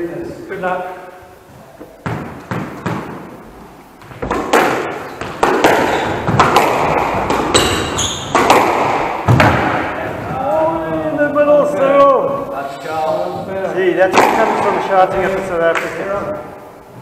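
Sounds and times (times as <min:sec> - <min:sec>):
shoes squeaking on wooden floor: 0:01.5 - 0:08.6
sharp knocks: 0:02.0 - 0:03.3, 0:04.0 - 0:10.2
squash ball hitting rackets and walls: 0:02.0 - 0:10.4, 0:13.4 - 0:15.0.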